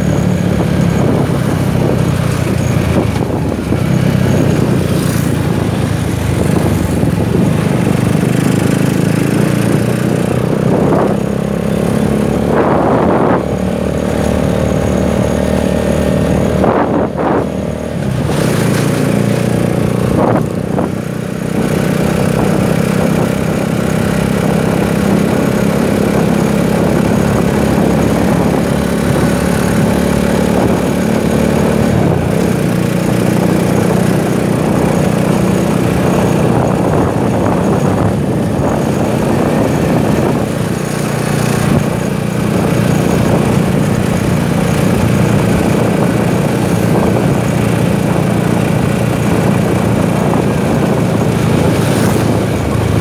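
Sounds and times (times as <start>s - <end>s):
motorcycle engine cruising: 0.0s - 53.0s
wind and road noise: 0.0s - 53.0s.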